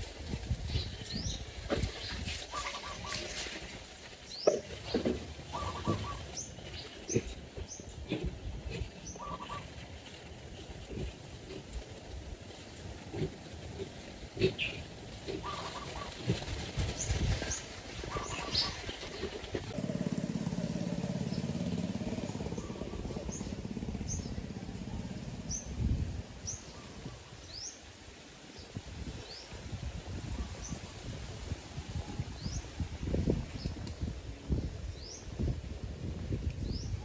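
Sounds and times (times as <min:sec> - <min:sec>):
low engine hum: 0:03.7 - 0:26.9.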